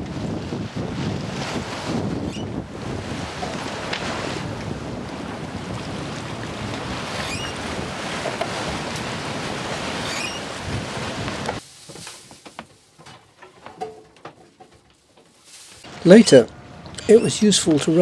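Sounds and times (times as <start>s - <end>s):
wind buffeting microphone: 0.0s - 11.6s
choppy water rushing along hull: 0.0s - 13.0s.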